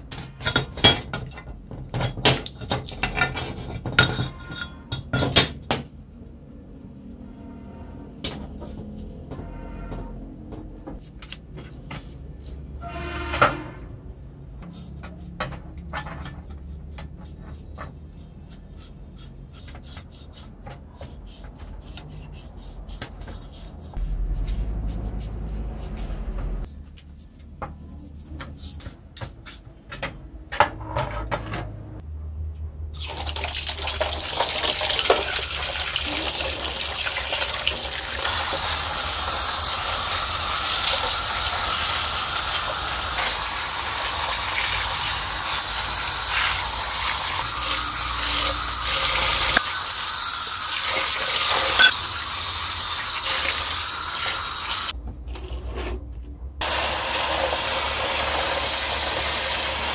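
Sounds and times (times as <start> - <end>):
toothbrush scrubbing metal: 14.6 - 29.8, 51.0 - 52.5
water jet splashing on metal parts: 33.0 - 54.9, 56.6 - 59.9.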